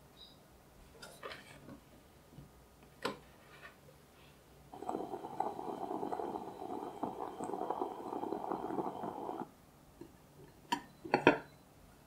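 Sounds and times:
coffee pot gurgling and sputtering: 0:04.7 - 0:09.5
glass bowl clinking on plate: 0:10.7 - 0:11.5.

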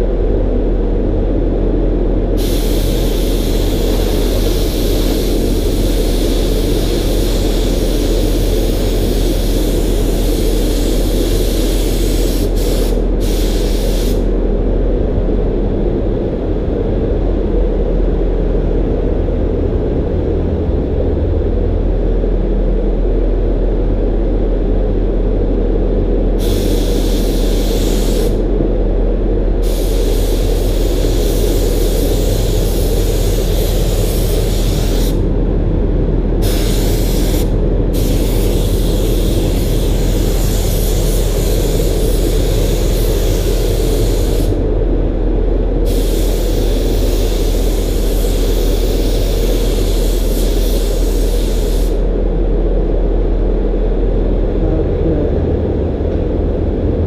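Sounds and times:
steady low rumble: 0:00.0 - 0:57.0
spray gun hissing: 0:02.4 - 0:14.3, 0:26.4 - 0:28.4, 0:29.6 - 0:35.2, 0:36.4 - 0:44.6, 0:45.8 - 0:52.0.

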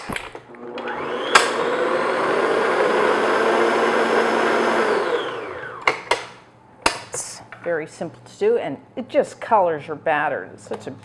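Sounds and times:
electric stand mixer motor: 0:00.5 - 0:05.9.

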